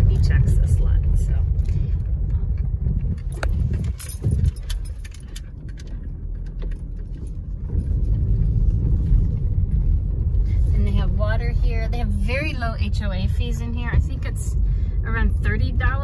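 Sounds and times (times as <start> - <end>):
light clicks and rattles: 0.0 - 10.6
tyres and engine rumbling: 0.0 - 16.0.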